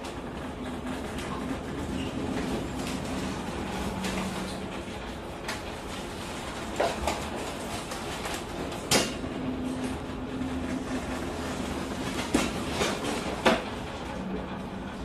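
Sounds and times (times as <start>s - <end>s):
ship engine rumble and hum: 0.0s - 15.0s.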